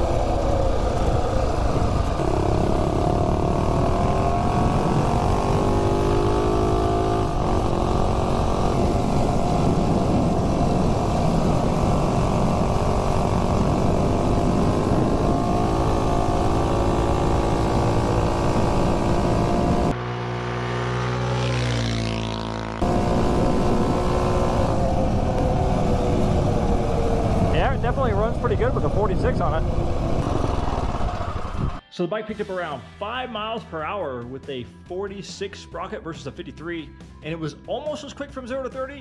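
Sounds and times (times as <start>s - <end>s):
minibike engine running flat out: 0.0s - 6.0s
wind rush: 0.0s - 20.0s, 22.8s - 31.8s.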